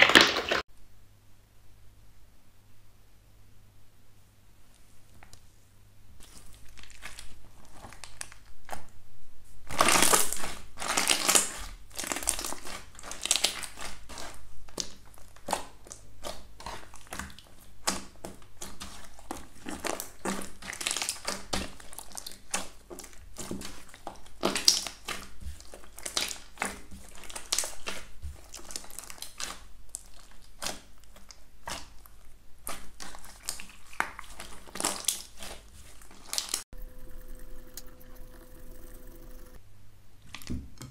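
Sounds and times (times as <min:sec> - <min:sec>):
slime kneaded by hand crackling: 0:06.2 - 0:09.0, 0:09.6 - 0:36.6.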